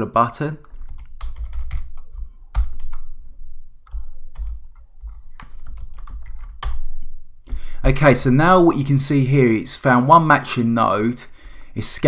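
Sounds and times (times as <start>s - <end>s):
typing on computer keyboard: 0.6s - 3.0s, 3.9s - 6.8s.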